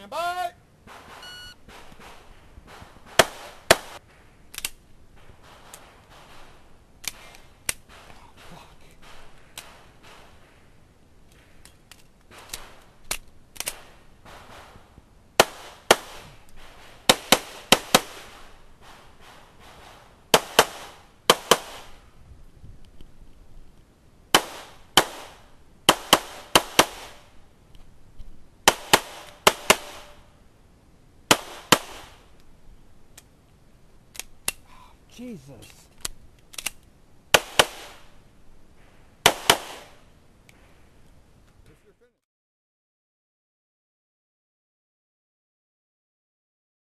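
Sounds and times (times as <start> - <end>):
pistol shots: 0.9 - 4.0, 5.2 - 10.6, 13.6 - 14.8, 15.4 - 22.0, 24.3 - 27.3, 28.7 - 30.2, 31.3 - 32.2, 37.3 - 38.1, 39.2 - 40.0.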